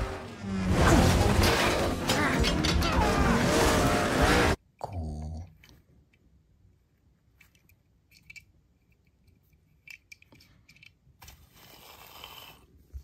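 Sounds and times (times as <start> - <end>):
toy car clicks and scrapes: 7.4 - 12.7.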